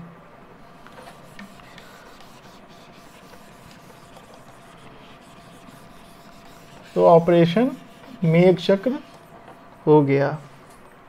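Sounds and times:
eraser rubbing on whiteboard: 0.8s - 9.4s.

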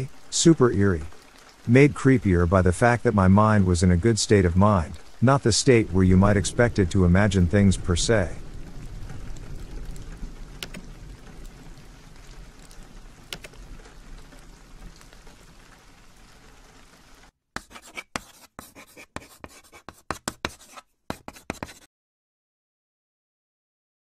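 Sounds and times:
rain: 0.0s - 17.4s
scratchy drawing strokes: 17.6s - 21.9s.

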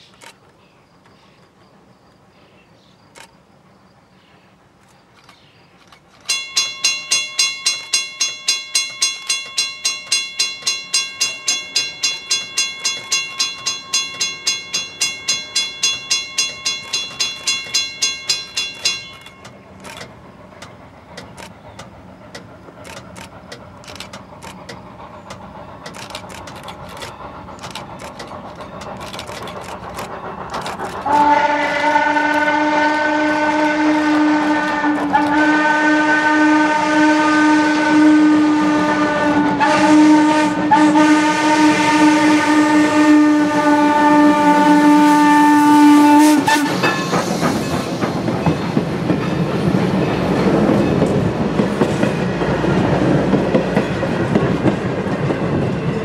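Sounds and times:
approaching train: 0.0s - 56.0s
railroad crossing bell ringing: 6.2s - 21.5s, 25.5s - 33.4s, 46.4s - 52.6s
sharp clicks: 15.9s - 31.1s
steam locomotive whistle blast: 31.0s - 48.0s.

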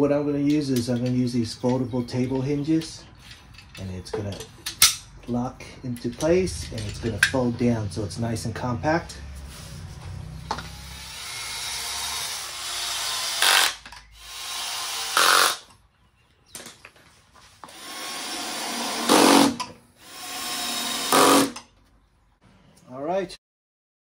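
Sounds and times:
power drill driving screws: 10.5s - 15.7s, 17.6s - 21.7s.

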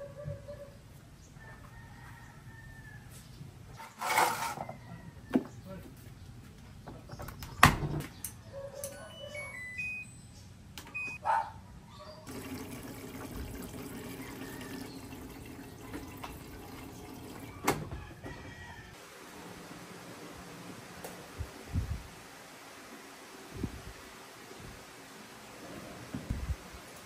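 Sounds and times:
tap water running into sink: 12.3s - 17.7s.

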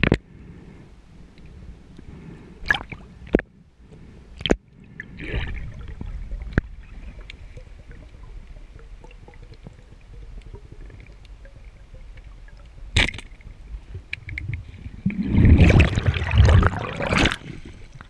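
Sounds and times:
muffled underwater rumble: 0.0s - 18.0s.

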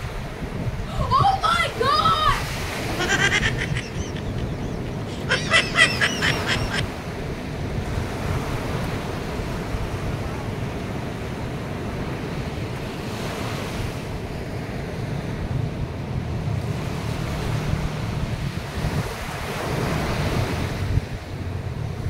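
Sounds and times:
sea surf breaking: 0.0s - 22.0s
wind on microphone: 0.0s - 22.0s
wavering call: 3.0s - 6.8s.

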